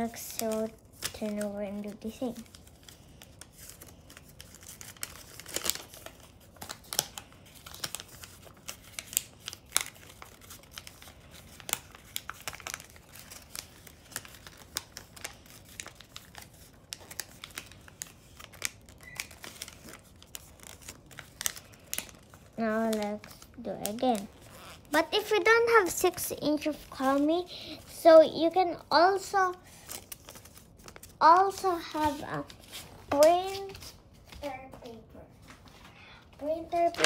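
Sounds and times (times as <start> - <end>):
paper crackling as pressed: 0.0 - 28.1
paper crinkling and rustling: 0.0 - 35.9, 36.6 - 37.0.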